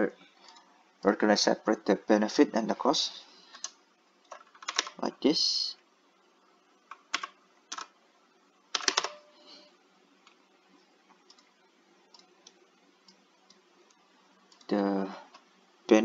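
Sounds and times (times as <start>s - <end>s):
computer keyboard clicks: 3.5s - 5.0s, 6.9s - 7.9s, 8.7s - 9.2s.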